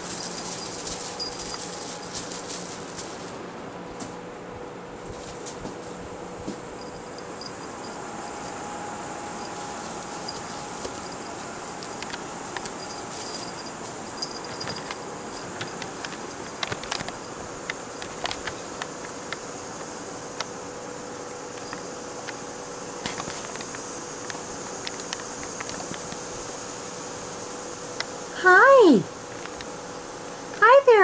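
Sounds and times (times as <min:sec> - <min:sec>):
steady high hiss: 0:00.0 - 0:31.0
light taps clicks and rustles: 0:09.6 - 0:20.5.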